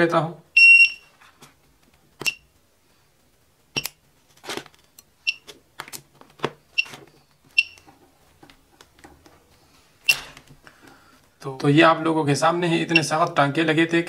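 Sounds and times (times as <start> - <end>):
short high beep: 0.6 - 1.1.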